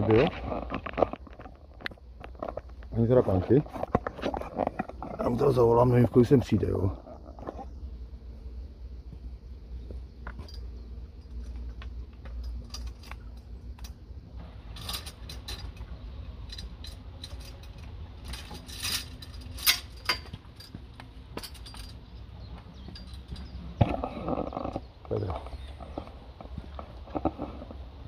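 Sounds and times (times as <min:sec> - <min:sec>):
keys jangling: 0:16.4 - 0:20.8.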